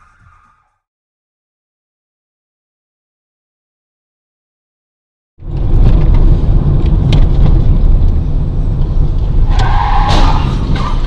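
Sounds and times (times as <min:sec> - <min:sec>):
car engine and road noise: 0:05.4 - 0:11.0.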